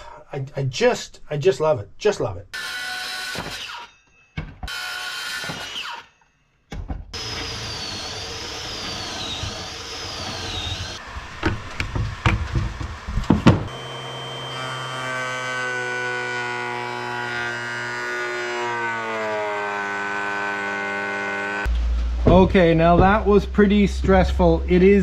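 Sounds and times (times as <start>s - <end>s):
cordless drill running: 7.2s - 11.0s
sharp knocks: 22.2s - 23.4s.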